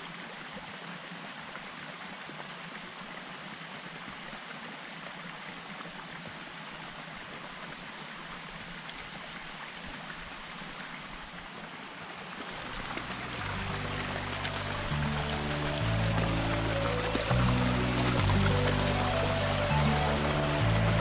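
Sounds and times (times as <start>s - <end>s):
stream running over rocks: 0.0s - 21.0s.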